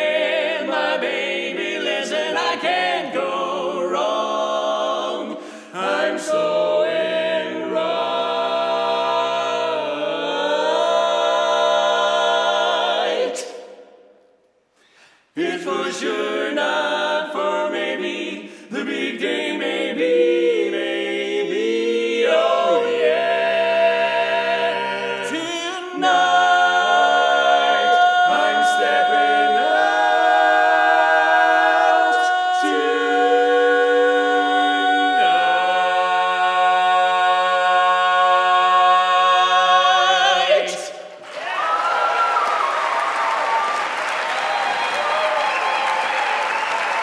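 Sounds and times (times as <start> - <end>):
quartet singing in harmony: 0.0 - 13.8, 15.4 - 47.0
applause: 41.1 - 47.0.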